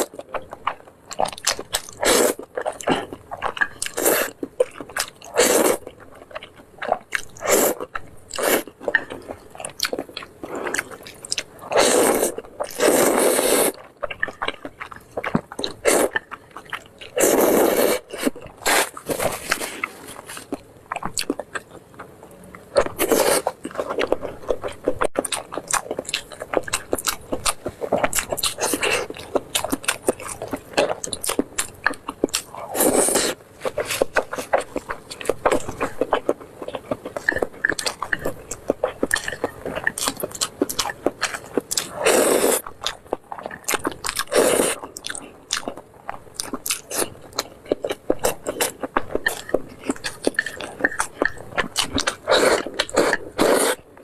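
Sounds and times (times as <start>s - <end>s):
wet chewing: 0.0s - 53.9s
noodle slurps: 11.7s - 13.8s, 17.2s - 20.4s, 42.0s - 42.6s, 44.3s - 44.8s, 52.2s - 53.8s.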